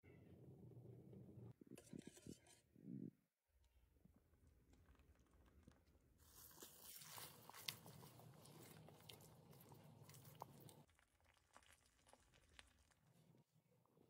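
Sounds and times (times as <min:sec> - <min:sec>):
spatula squelching in a pan: 0:06.2 - 0:10.9.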